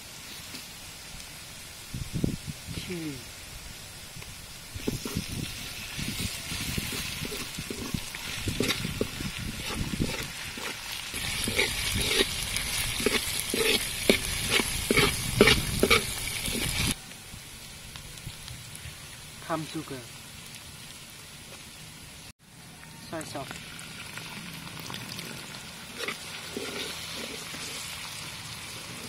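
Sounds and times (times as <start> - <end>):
garlic sizzling in hot oil: 0.0 - 22.2, 23.3 - 29.0
metal ladle scraping a pan: 4.8 - 17.0, 25.9 - 28.0.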